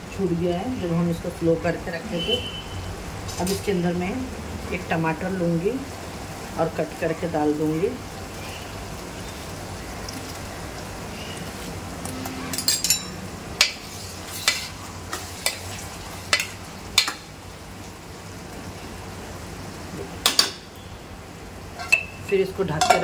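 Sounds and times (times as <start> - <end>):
meat and onions sizzling in pot: 0.0 - 23.0
spoon clinking against pot: 12.5 - 13.8, 21.8 - 23.0.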